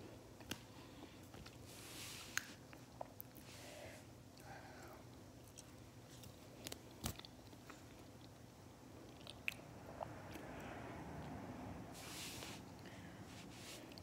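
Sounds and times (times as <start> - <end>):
person chewing: 9.0 - 9.6.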